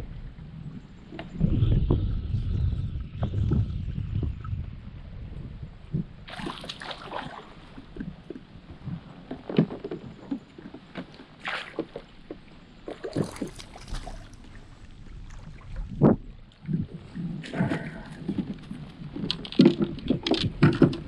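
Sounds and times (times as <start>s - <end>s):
water splashing beside a kayak: 5.8s - 21.0s.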